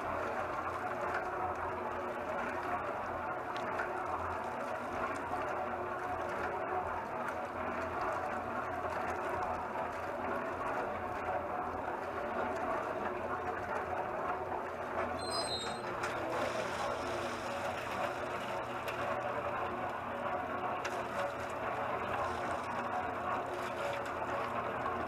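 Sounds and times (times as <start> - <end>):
cement mixer motor humming: 0.0 - 25.0
short high squeak: 15.2 - 15.9.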